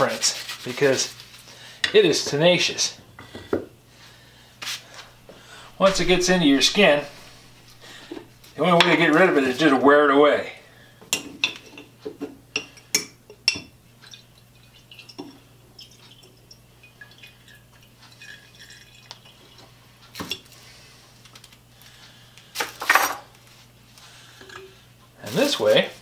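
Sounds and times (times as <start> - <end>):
scraping rub: 0.0 - 1.5.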